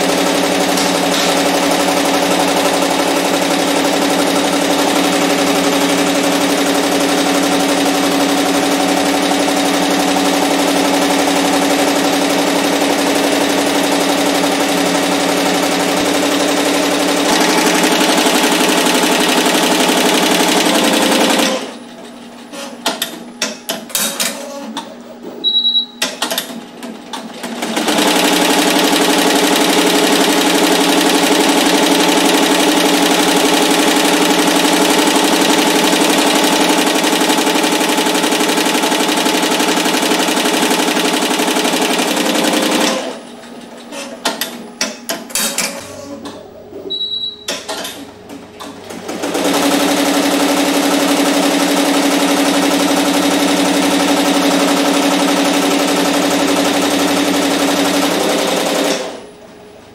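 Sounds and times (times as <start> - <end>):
machine clicking and knocking: 0.0 - 21.7, 22.8 - 24.9, 43.7 - 46.5
embroidery machine stitching: 0.0 - 21.8, 26.2 - 43.2, 47.5 - 59.2
short high beep: 25.4 - 26.1, 46.8 - 47.6.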